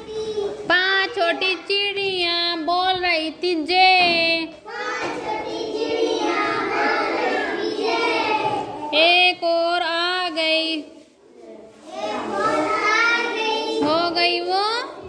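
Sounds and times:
children singing: 0:04.7 - 0:08.9, 0:11.9 - 0:13.9.

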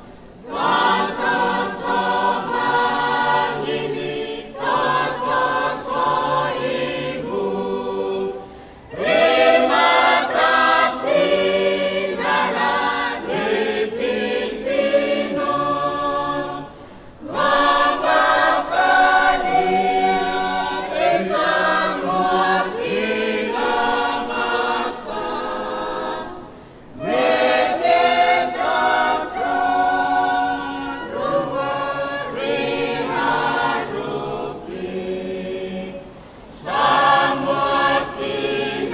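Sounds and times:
choir singing a hymn a cappella: 0:00.0 - 0:38.9.

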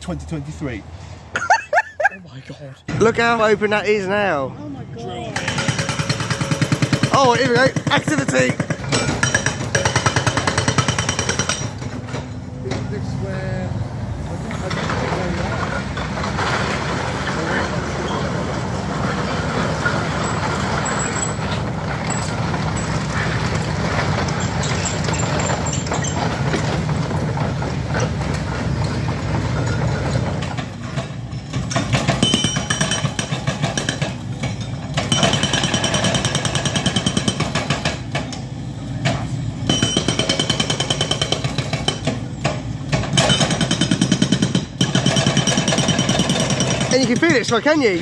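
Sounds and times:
hydraulic breaker hammering concrete: 0:05.4 - 0:12.0, 0:19.1 - 0:38.4, 0:39.1 - 0:48.0.

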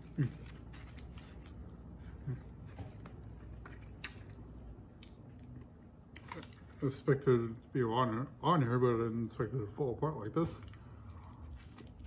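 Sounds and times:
burrito being handled: 0:00.0 - 0:03.6.

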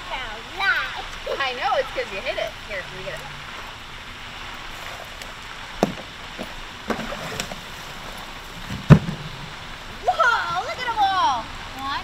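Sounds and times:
box thumping on ground: 0:05.8 - 0:07.6, 0:08.7 - 0:09.3
cardboard box knocks and scrapes: 0:05.8 - 0:07.6, 0:08.6 - 0:09.3.

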